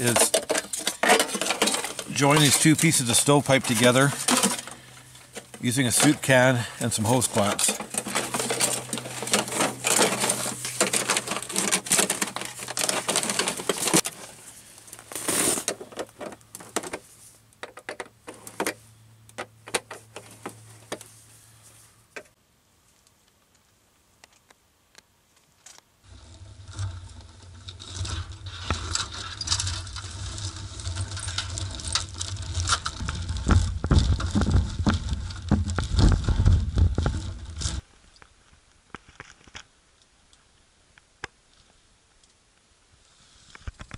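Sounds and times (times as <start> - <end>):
metal parts rattling and clinking: 0.0 - 14.2
low crackling rumble: 26.0 - 38.9.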